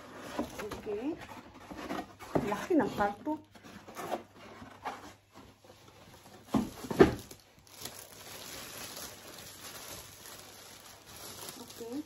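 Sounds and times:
plastic wrapping rustling: 0.0 - 12.0
thumps on cardboard box: 6.5 - 7.3.

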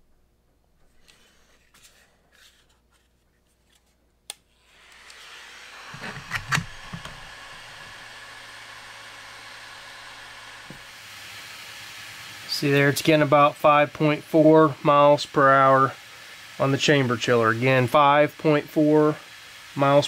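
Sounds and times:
fan whirring: 4.3 - 20.0.

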